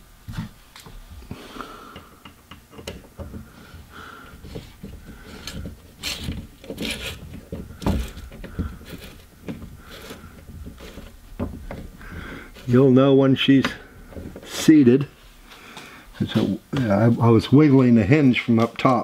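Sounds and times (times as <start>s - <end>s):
hinge clicks and knocks: 1.9s - 3.5s.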